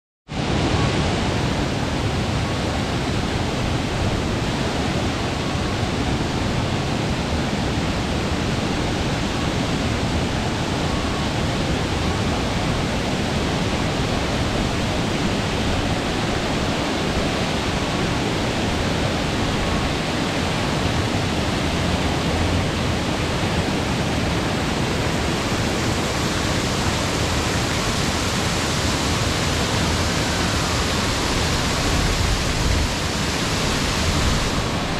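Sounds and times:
water spraying and splashing: 25.1 - 34.9.

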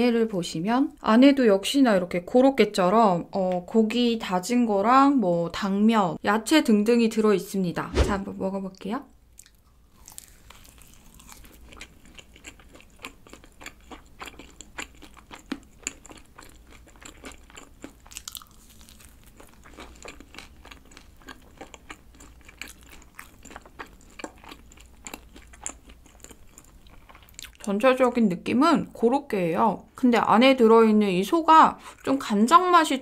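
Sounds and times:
chewing sounds: 9.4 - 27.7
crispy food crackling: 9.4 - 27.9.

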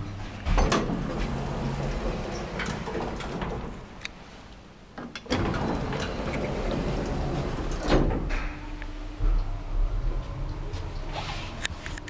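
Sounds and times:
lift doors thudding shut: 0.4 - 4.0, 5.0 - 8.7
lift door operator rumble: 0.4 - 9.8.

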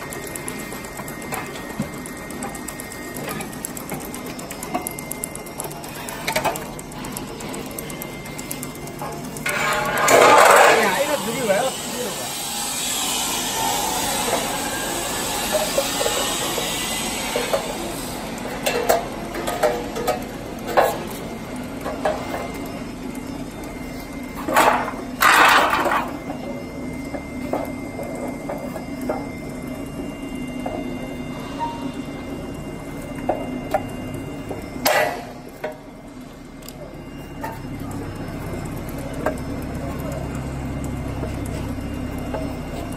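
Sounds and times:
loud metal scraping: 9.4 - 18.2.

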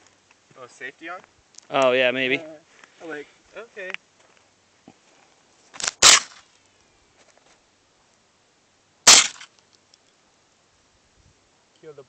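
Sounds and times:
rifle shots: 5.8 - 6.4, 9.1 - 9.5.

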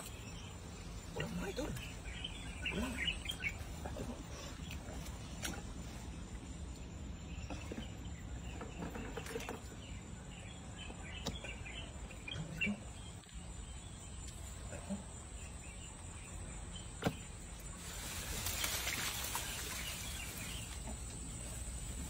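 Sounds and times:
faint bird chirps: 0.0 - 6.0.

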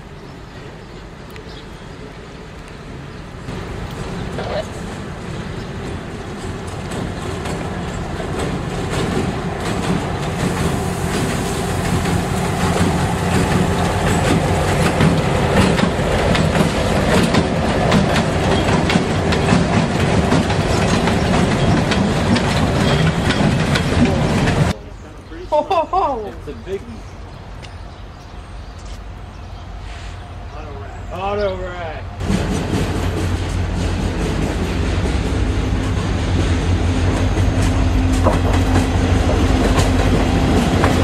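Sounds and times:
train wheels clacking over rail joints: 3.6 - 24.8, 32.2 - 41.0.

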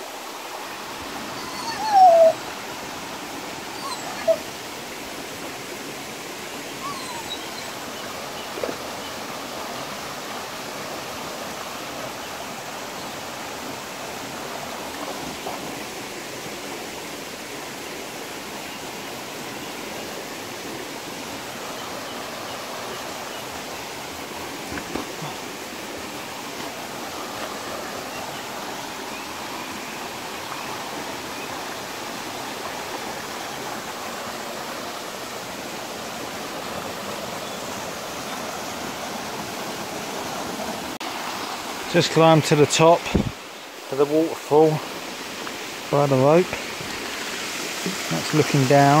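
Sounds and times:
waterfall splashing into pool: 23.6 - 29.5, 38.8 - 49.0.

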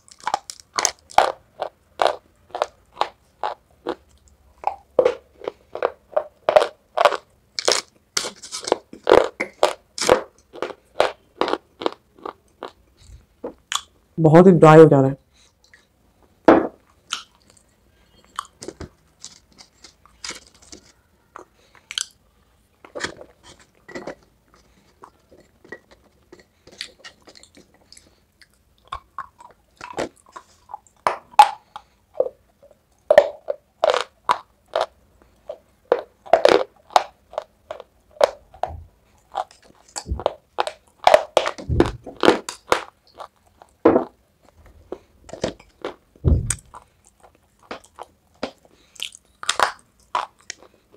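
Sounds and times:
clay being crunched and chewed: 0.0 - 13.9, 16.9 - 22.2, 44.4 - 50.9.

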